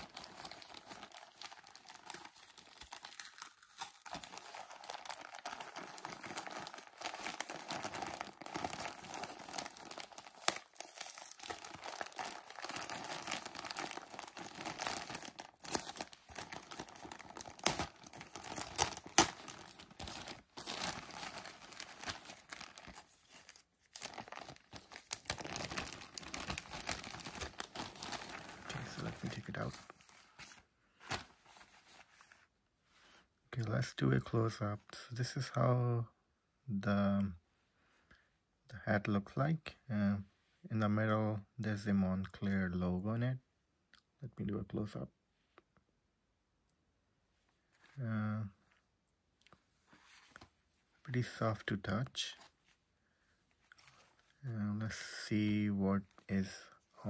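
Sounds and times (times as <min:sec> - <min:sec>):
plastic bag crinkling: 0:00.0 - 0:30.0.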